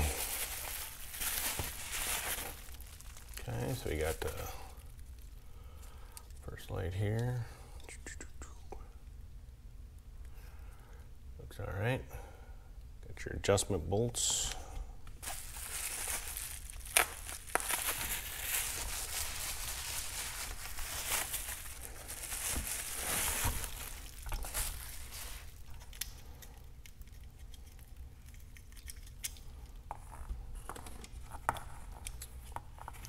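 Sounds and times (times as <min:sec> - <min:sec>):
bubble wrap rustling and crinkling: 0:00.0 - 0:05.5, 0:15.2 - 0:29.4.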